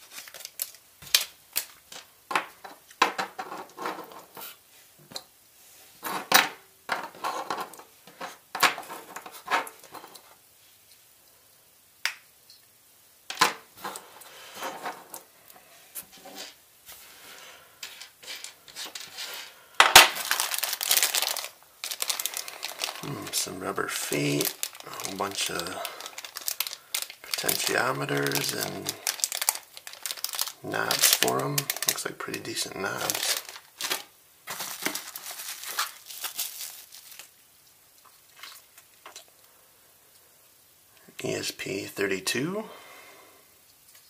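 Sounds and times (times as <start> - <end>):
plastic bags crinkling: 0.0 - 2.1, 17.8 - 37.4
small electronic parts clattering: 13.3 - 15.3, 17.8 - 23.1, 24.0 - 32.0.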